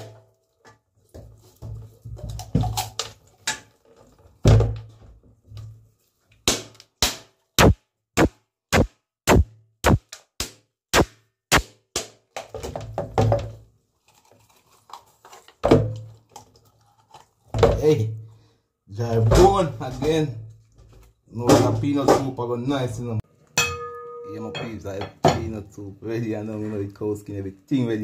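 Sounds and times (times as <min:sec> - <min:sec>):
machete striking coconut: 0:06.5 - 0:12.2.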